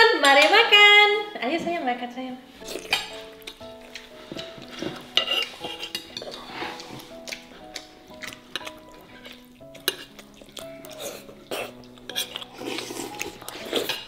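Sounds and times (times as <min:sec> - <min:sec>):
light background music: 0:00.0 - 0:14.0
fork scraping on plate: 0:04.3 - 0:07.4, 0:08.2 - 0:14.0.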